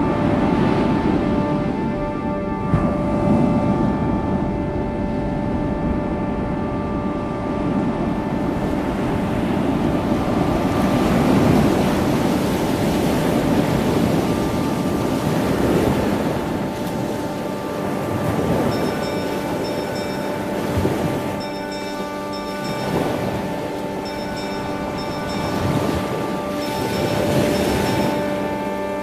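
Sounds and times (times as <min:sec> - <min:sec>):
rumbling wind and sea: 0:00.0 - 0:29.0
faint held tones: 0:17.1 - 0:29.0.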